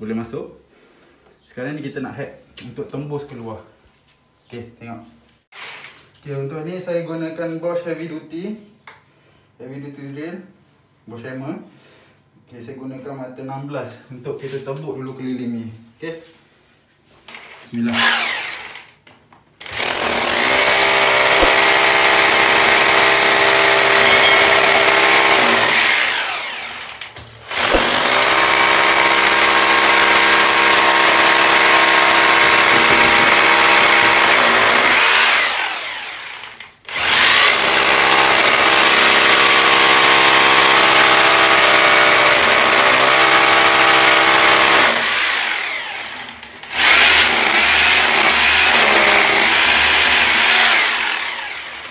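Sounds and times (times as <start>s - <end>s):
hammer drill boring into brick: 17.3s - 19.0s, 19.6s - 51.9s.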